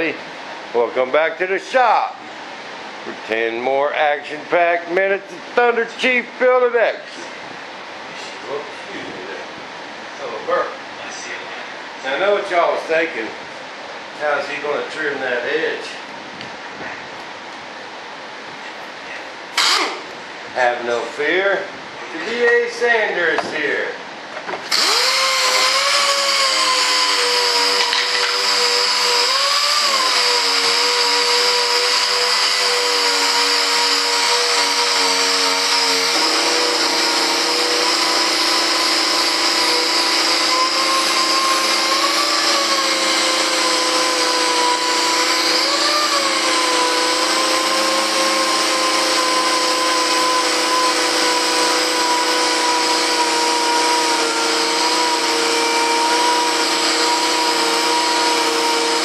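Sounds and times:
sander motor whine: 0:24.7 - 0:59.0.

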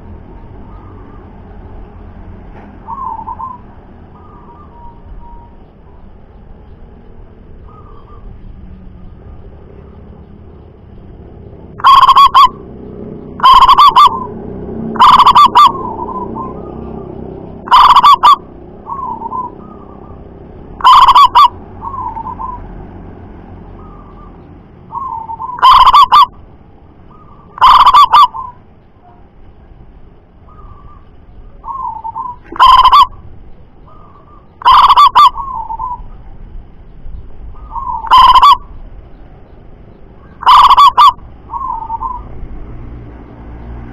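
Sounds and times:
dove cooing calls: 0:02.8 - 0:05.7, 0:07.6 - 0:08.4, 0:11.7 - 0:22.8, 0:23.8 - 0:26.4, 0:27.0 - 0:29.2, 0:30.4 - 0:36.3, 0:37.4 - 0:38.8, 0:40.2 - 0:42.5.

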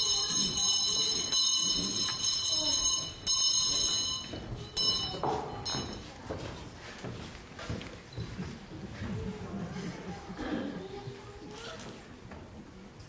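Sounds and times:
shrill high ringing: 0:00.0 - 0:06.0.

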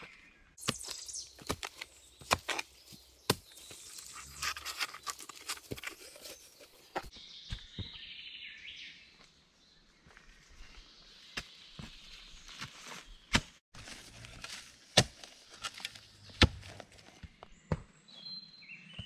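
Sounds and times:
shovel scraping in soil: 0:00.6 - 0:07.1
sharp knocks and thuds: 0:16.3 - 0:17.9.

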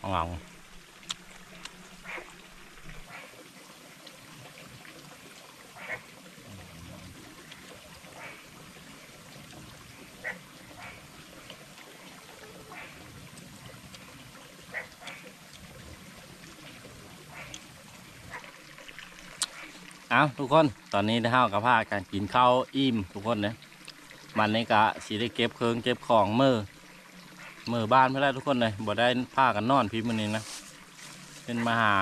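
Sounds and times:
stream water trickling: 0:00.0 - 0:32.0.

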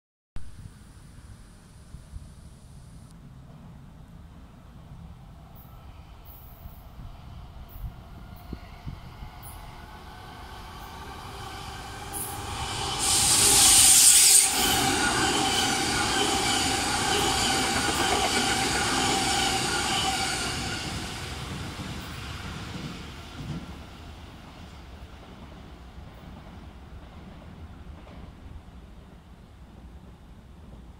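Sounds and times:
electric train passing: 0:03.2 - 0:30.9
high-pitched train whine: 0:04.9 - 0:26.5.

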